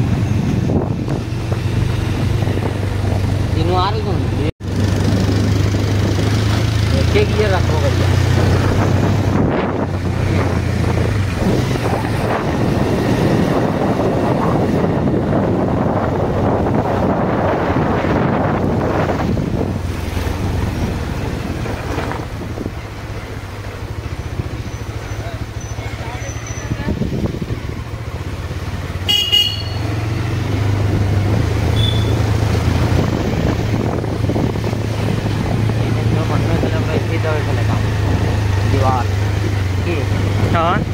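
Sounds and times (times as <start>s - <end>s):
wind buffeting microphone: 0.0s - 24.9s, 26.5s - 29.0s, 29.9s - 40.9s
motorcycle engine running: 0.0s - 40.9s
horn beeping: 29.0s - 30.0s, 31.7s - 32.3s.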